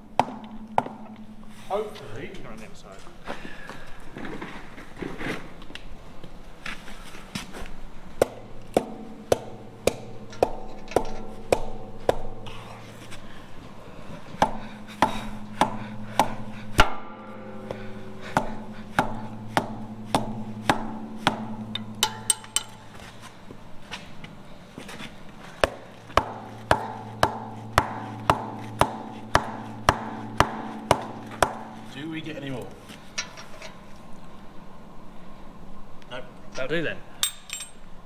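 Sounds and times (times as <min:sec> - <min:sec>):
metal drum ringing: 0:00.0 - 0:02.4, 0:08.4 - 0:13.0, 0:14.5 - 0:23.1, 0:26.2 - 0:33.8
hammer knocking on wooden block: 0:00.2 - 0:01.2, 0:08.2 - 0:12.4, 0:14.4 - 0:22.8, 0:25.6 - 0:31.9.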